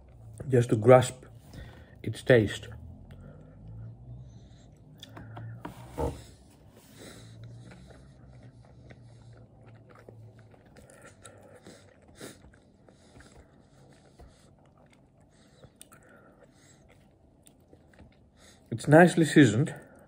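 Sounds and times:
close-up chewing: 6.8s - 20.0s.

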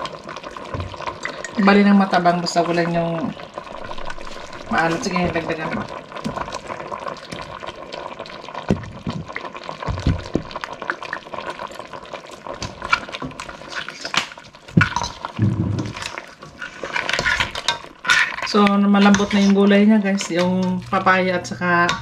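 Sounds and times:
liquid sloshing: 2.6s - 7.8s, 12.4s - 21.0s
spoon stirring broth in pot: 12.4s - 22.0s.

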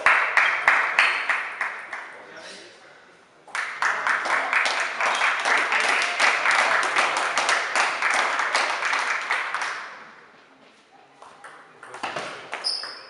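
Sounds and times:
spectators clapping: 0.0s - 2.2s, 3.5s - 10.1s.

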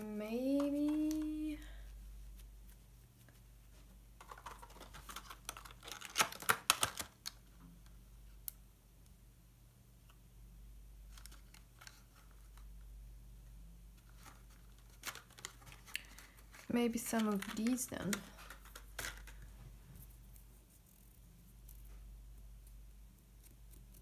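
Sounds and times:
paper rustling: 2.3s - 7.2s, 14.0s - 21.0s.

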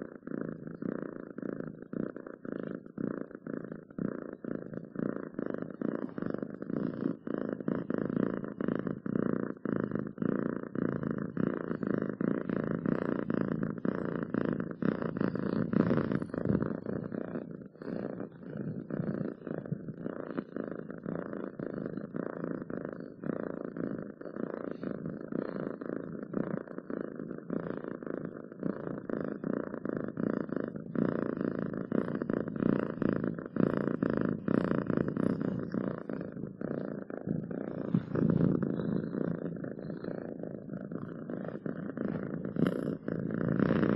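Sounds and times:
cat purring: 0.0s - 43.9s.

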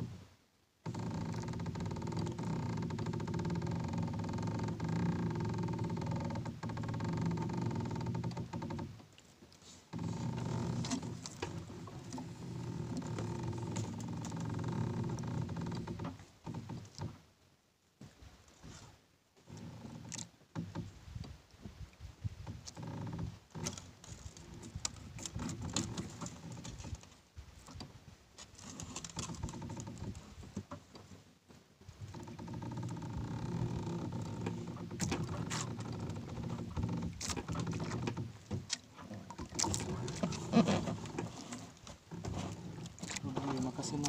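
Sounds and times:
fishing line rustling and scraping: 18.5s - 19.0s.

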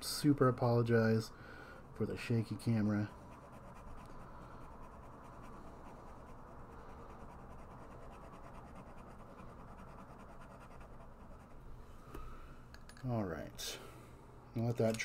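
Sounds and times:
pen nib scratching on paper: 3.2s - 11.6s.

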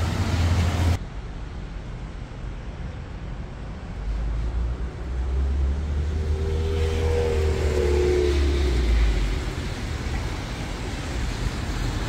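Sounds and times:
vehicle engine rumble: 0.0s - 12.0s
engine tone of passing vehicle: 4.0s - 11.8s.

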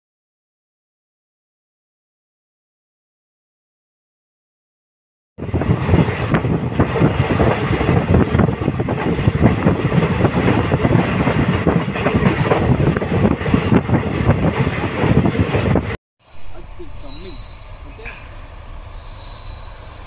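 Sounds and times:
train rumble: 5.4s - 20.0s.

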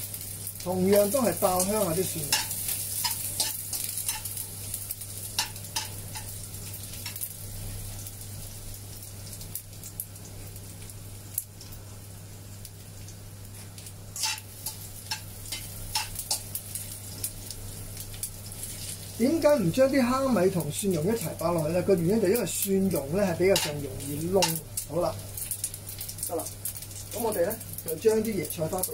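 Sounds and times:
food sizzling in hot oil: 0.0s - 28.9s
spatula scraping and tapping pan: 2.2s - 4.4s, 23.6s - 23.8s.

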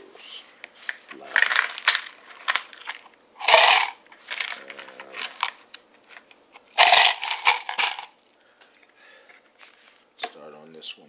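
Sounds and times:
coins jingling: 0.2s - 5.6s, 6.8s - 8.1s
coins clinking and scraping: 0.2s - 8.2s.

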